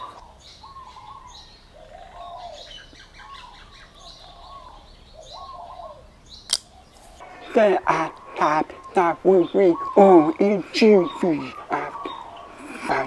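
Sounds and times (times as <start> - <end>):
dove-like bird calls: 0.0 - 13.0
sharp click: 6.5 - 6.7.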